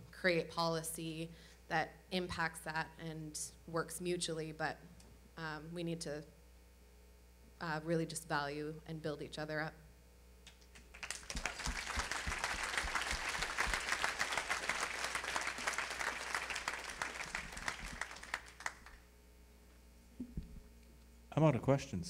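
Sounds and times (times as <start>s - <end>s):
audience applauding: 10.9s - 19.0s.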